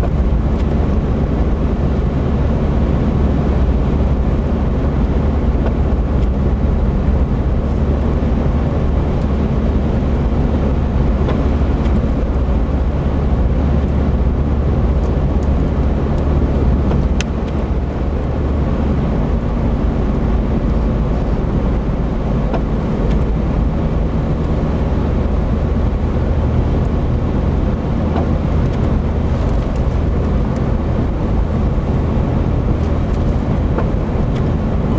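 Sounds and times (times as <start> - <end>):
car engine and tyre rumble: 0.0 - 34.9.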